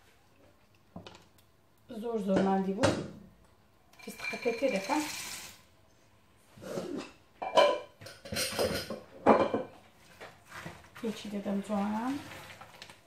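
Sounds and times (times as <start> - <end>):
wooden spoon stirring nuts in pot: 10.9 - 12.7.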